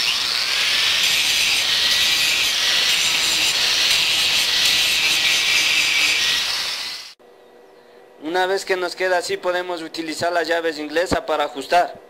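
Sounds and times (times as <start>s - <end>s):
angle grinder grinding steel: 0.0s - 7.2s.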